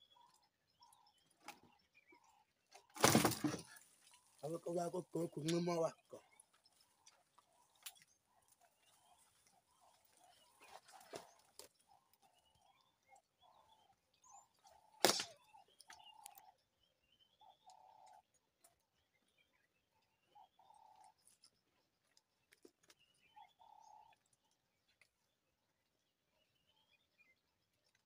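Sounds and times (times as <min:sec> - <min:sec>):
sharp crack: 0:15.0 - 0:15.4.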